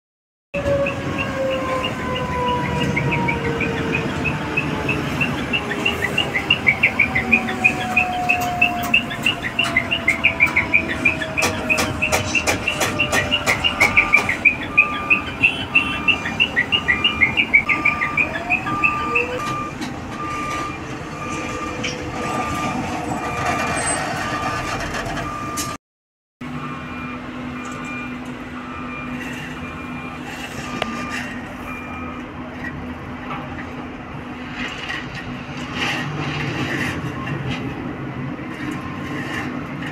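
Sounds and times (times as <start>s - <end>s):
on-off beeping: 0.7s - 25.8s
rapid repeated chirping: 5.2s - 19.3s.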